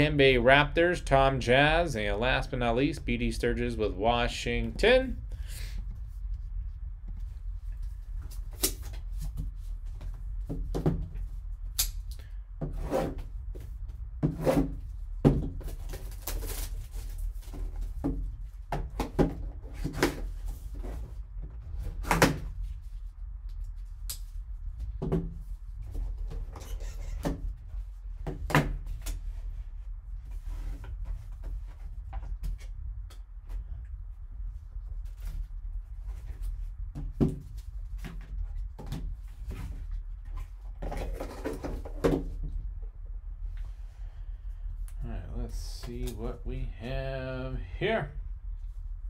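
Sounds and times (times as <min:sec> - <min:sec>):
steady low hum: 0:00.0 - 0:49.0
plastic wrap and cardboard rustling: 0:15.5 - 0:18.3.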